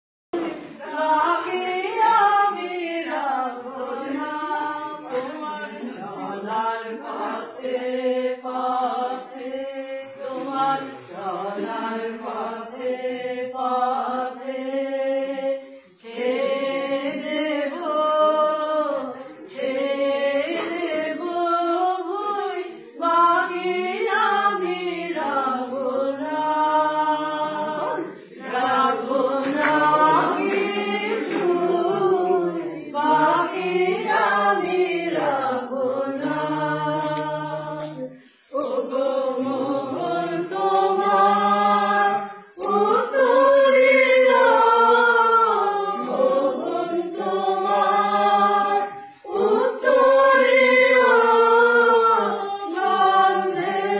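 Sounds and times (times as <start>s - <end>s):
women singing together: 0.4s - 53.9s.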